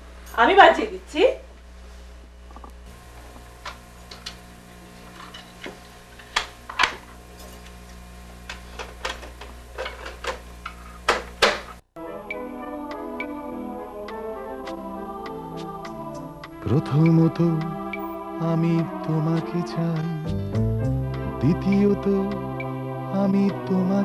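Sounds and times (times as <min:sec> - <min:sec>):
steady low hum: 0:00.0 - 0:11.8
music from cassette player: 0:12.0 - 0:24.0.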